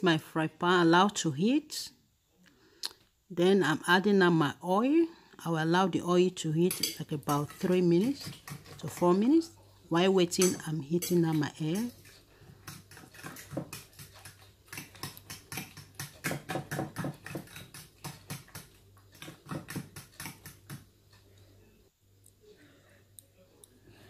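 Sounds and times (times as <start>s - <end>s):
spoon beating eggs in glass bowl: 6.6s - 20.9s.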